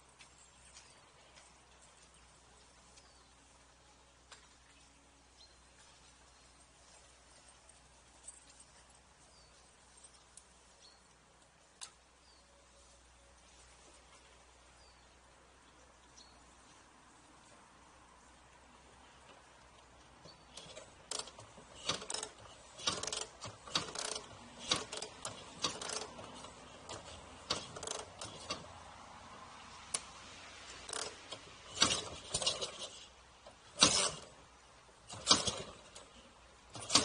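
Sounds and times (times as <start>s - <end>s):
metallic clicks and clinks: 20.5s - 28.8s.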